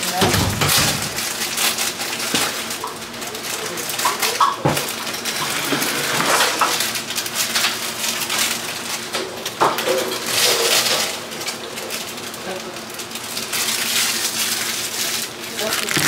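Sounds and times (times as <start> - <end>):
noodle packet crinkling: 13.6 - 16.0.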